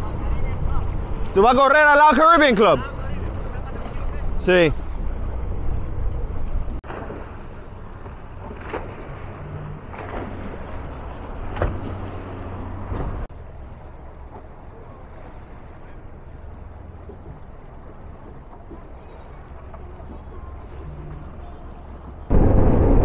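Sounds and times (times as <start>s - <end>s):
outboard motors humming: 0.0s - 23.0s
water splashing: 0.0s - 23.0s.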